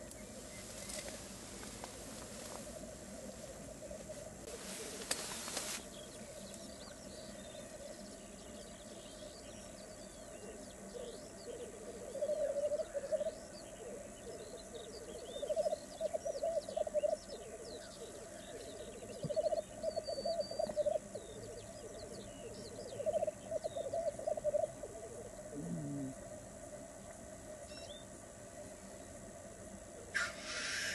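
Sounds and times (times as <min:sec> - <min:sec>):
small birds chirping: 0:00.0 - 0:26.2
grouse bubbling coo: 0:10.0 - 0:27.6.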